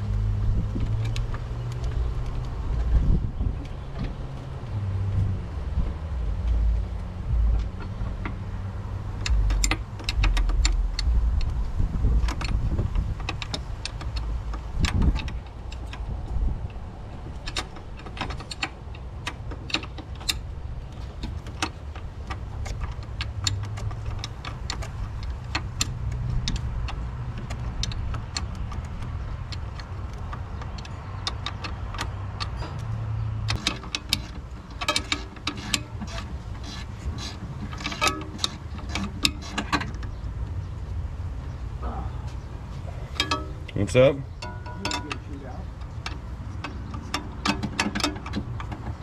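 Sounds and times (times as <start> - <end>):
low rumble: 0.0 - 19.5
wrench metal clicks and clinks: 44.4 - 48.9.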